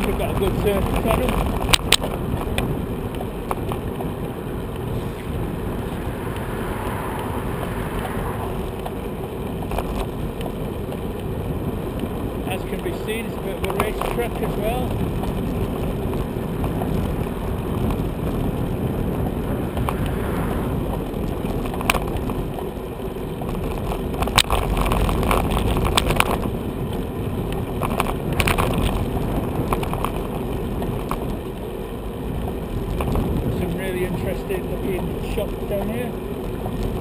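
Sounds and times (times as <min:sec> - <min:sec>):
wind on microphone: 0:00.0 - 0:22.7
bicycle tyres rumbling: 0:00.0 - 0:37.0
bike knocks and rattles: 0:12.5 - 0:20.0, 0:23.4 - 0:31.3.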